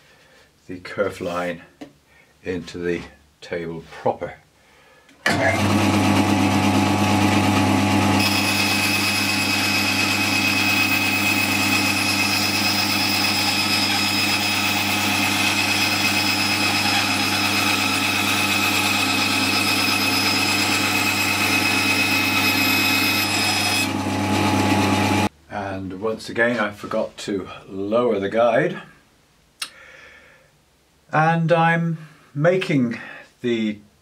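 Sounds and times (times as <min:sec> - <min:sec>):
bandsaw motor hum: 0:05.3 - 0:25.3
saw blade cutting board: 0:05.3 - 0:25.3.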